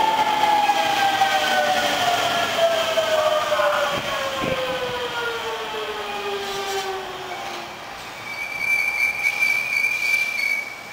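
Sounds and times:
high-pitched train squeal: 8.2s - 10.9s.

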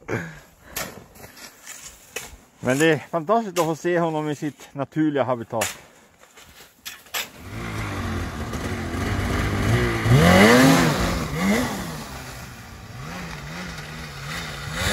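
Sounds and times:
snowmobile engine revving: 7.4s - 14.9s.

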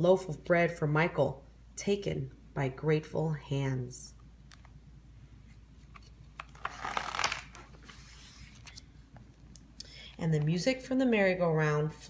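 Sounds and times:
book page turning: 5.5s - 9.0s.

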